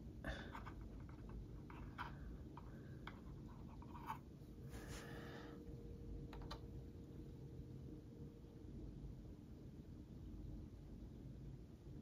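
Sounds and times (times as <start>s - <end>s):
soft scratching: 0.5s - 5.2s.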